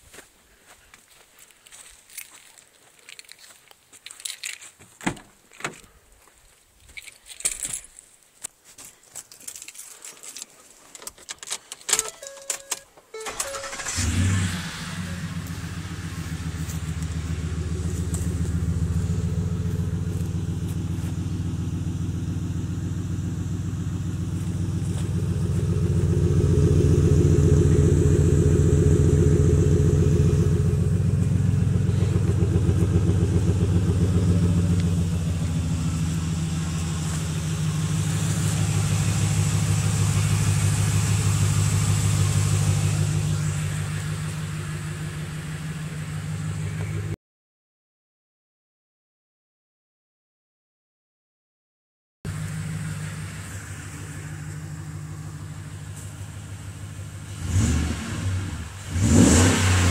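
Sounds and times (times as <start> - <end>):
clicks and rattles: 9.2 - 13.0
truck engine starting and idling: 11.4 - 47.2, 52.3 - 59.9.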